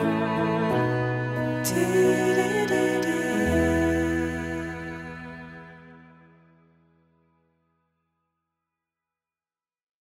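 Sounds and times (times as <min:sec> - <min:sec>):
music of long held notes: 0:00.0 - 0:07.2.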